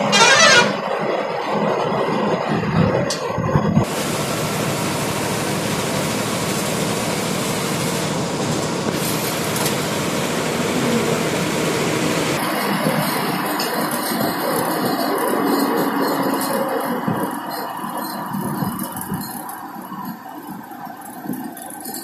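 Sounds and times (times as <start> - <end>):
bus interior road noise: 0.0 - 22.0.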